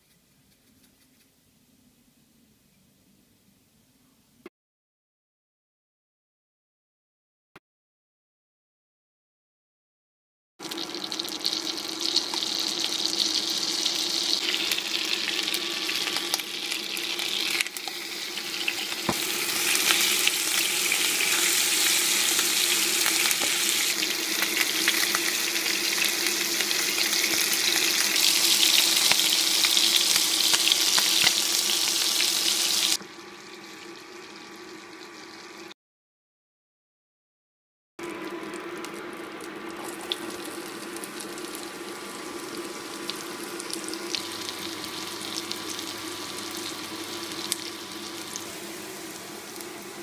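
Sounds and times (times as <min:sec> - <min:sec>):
chicken sizzling in a pan: 0:10.6 - 0:35.8, 0:38.0 - 0:50.0.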